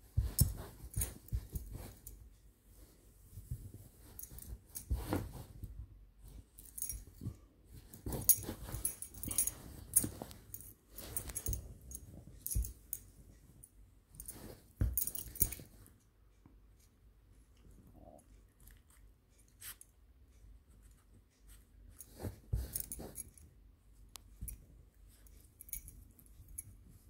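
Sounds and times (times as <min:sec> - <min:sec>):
dog rustling on fabric: 0:00.0 - 0:12.8, 0:22.0 - 0:23.4.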